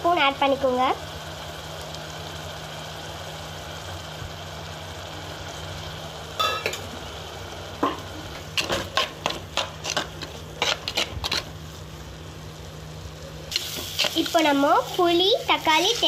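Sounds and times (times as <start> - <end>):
prawns sizzling in oil: 0.0 - 16.0
metal spoon scraping clay pot: 8.6 - 11.5.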